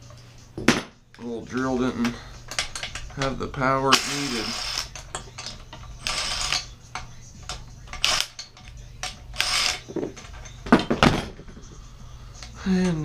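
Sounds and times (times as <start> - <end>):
metal tools clicking: 1.6 - 10.9
scraping metal rattles: 1.6 - 11.9.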